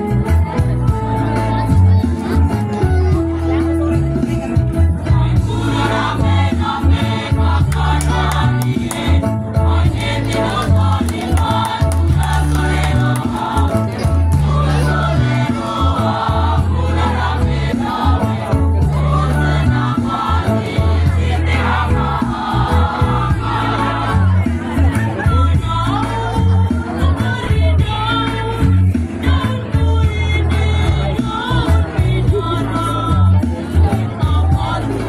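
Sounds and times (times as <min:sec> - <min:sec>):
low bass line: 0:00.0 - 0:35.0
choir singing: 0:05.3 - 0:25.2.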